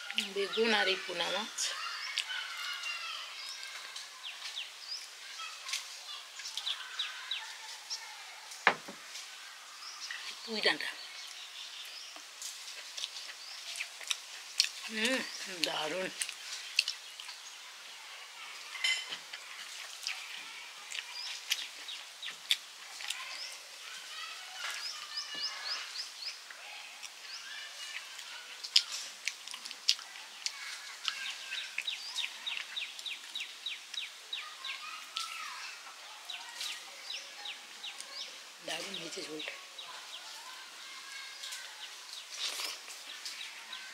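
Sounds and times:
birds chirping: 0.0s - 43.9s
chewing and mouth clicks: 12.4s - 14.9s, 16.2s - 17.4s, 19.3s - 23.4s, 27.8s - 34.1s.

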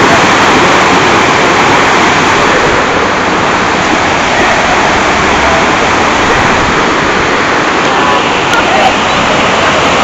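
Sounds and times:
rapids rushing in stream: 0.0s - 10.0s.

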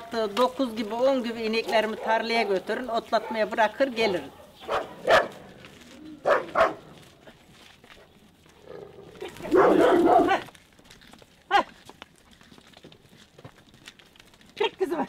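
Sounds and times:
dog barking: 1.8s - 3.6s, 4.2s - 5.4s, 6.2s - 6.9s, 8.7s - 10.4s.

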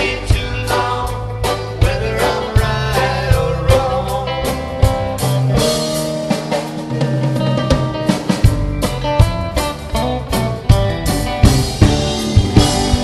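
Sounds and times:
reggae band playing: 0.0s - 13.0s.

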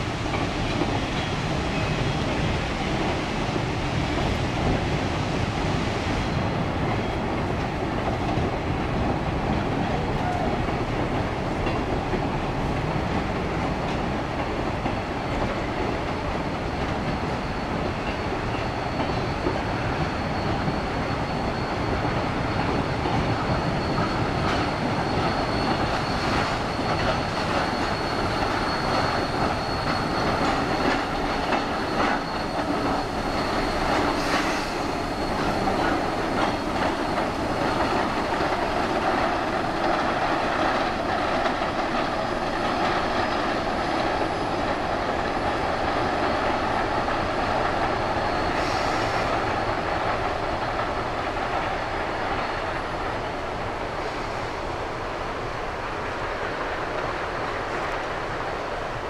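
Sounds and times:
steam trains rolling: 0.0s - 59.0s
high wheel squeal: 14.9s - 54.8s.

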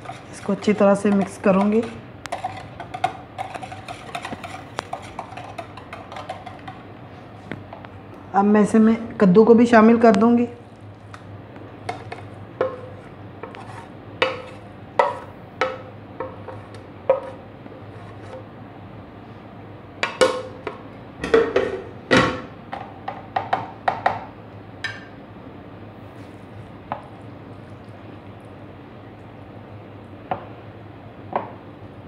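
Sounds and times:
wooden spoon scraping a plate: 0.0s - 7.4s, 11.9s - 15.3s, 16.4s - 18.4s.

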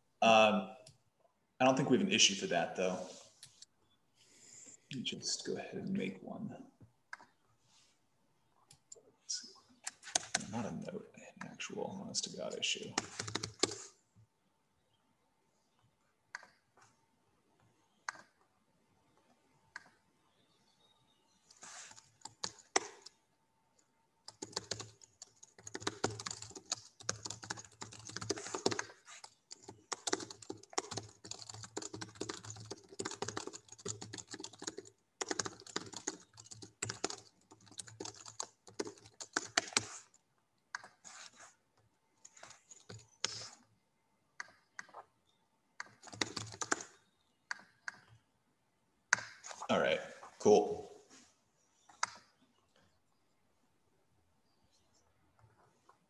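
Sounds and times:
typing on computer keyboard: 9.9s - 10.5s, 12.9s - 13.8s, 21.9s - 23.2s, 24.3s - 41.0s, 42.2s - 43.5s, 45.8s - 48.1s.

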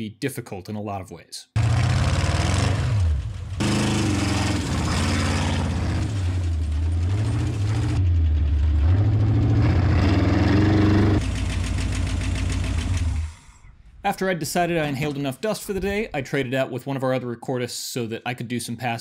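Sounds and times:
off-road vehicle engine revving: 1.6s - 13.5s.

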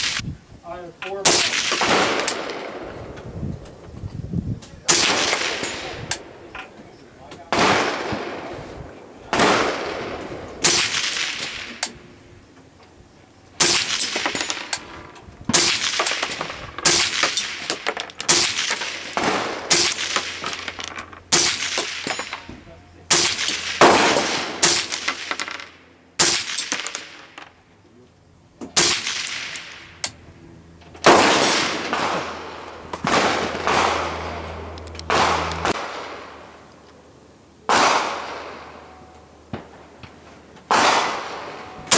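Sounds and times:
rifle shots: 1.3s - 3.0s, 4.9s - 6.3s, 7.5s - 12.0s, 13.6s - 22.5s, 23.1s - 27.3s, 28.8s - 29.9s, 31.0s - 36.6s, 37.7s - 38.8s, 40.7s - 41.9s.

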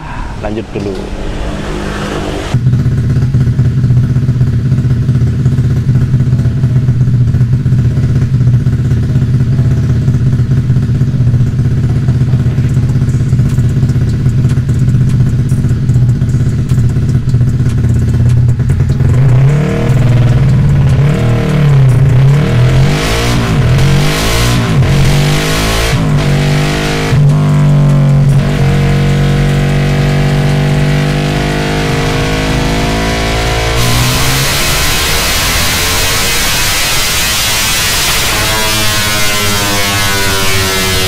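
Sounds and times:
motorcycle engine revving: 0.0s - 41.0s.

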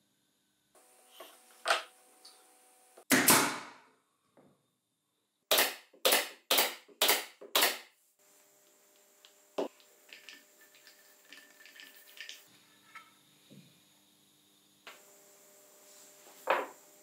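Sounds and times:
nail gun shots: 3.1s - 3.8s, 5.5s - 7.9s.

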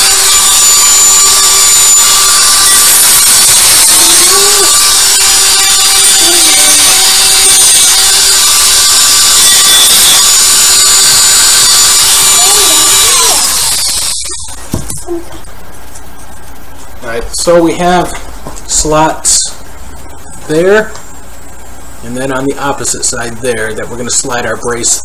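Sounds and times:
rotary tool cutting plastic: 0.0s - 15.0s.

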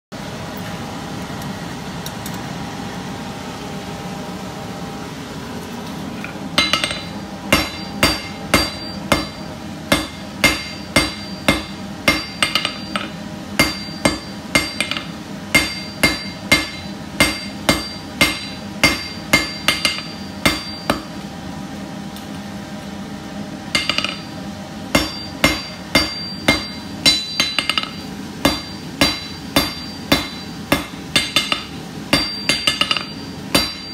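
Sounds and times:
steady hum: 0.1s - 33.9s
hammer striking steel on anvil: 6.6s - 21.2s, 23.7s - 33.9s.

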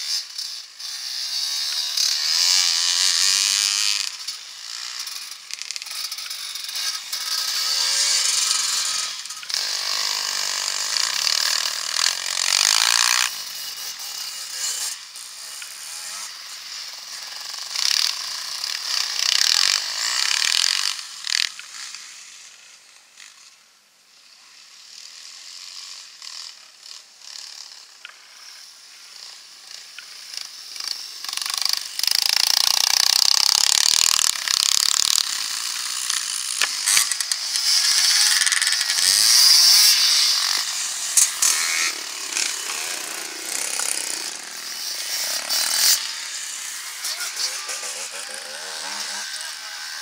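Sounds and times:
dirt bikes riding past: 0.0s - 17.3s, 24.2s - 50.0s.

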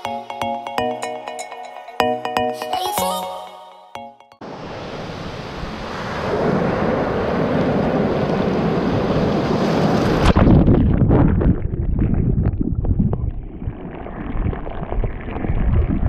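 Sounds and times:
ocean surf churning: 4.4s - 10.2s
wind buffeting microphone: 5.4s - 16.0s
muffled underwater rumble: 10.6s - 16.0s.

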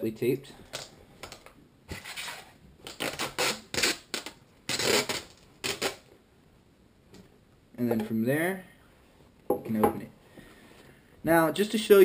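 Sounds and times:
tape being peeled off: 0.7s - 6.1s.

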